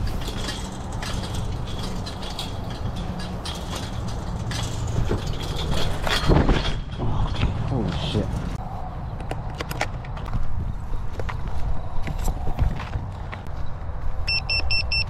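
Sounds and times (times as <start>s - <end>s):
rustling while walking: 0.0s - 14.3s
short high beeps from buzzer: 14.3s - 15.0s.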